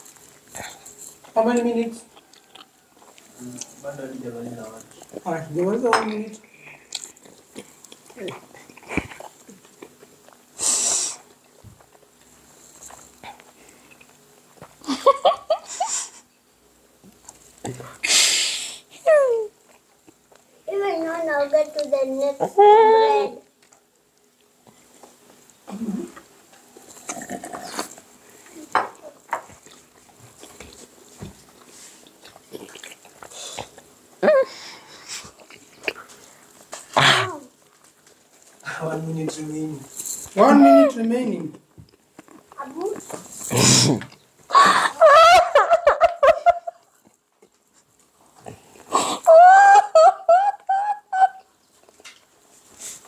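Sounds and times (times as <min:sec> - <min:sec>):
people chewing and swallowing: 0:00.0 - 0:01.4, 0:02.1 - 0:03.9, 0:04.6 - 0:05.3, 0:06.4 - 0:10.6, 0:11.2 - 0:14.9, 0:19.6 - 0:20.6, 0:23.6 - 0:28.6, 0:29.3 - 0:38.7, 0:41.5 - 0:44.9, 0:46.8 - 0:49.3
people laughing in squealing bursts: 0:44.5 - 0:46.8, 0:49.2 - 0:51.5.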